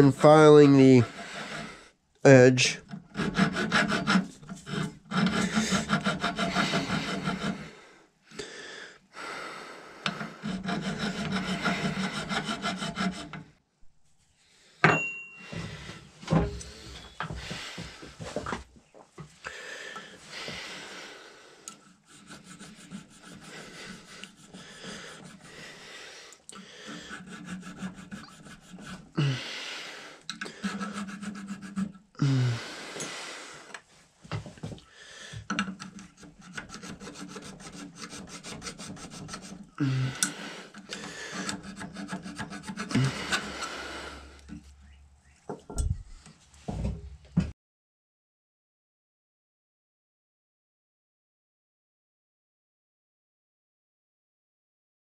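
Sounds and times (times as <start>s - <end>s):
hand file on steel: 0.0s - 7.9s, 10.0s - 13.6s, 19.9s - 32.4s, 35.4s - 44.6s.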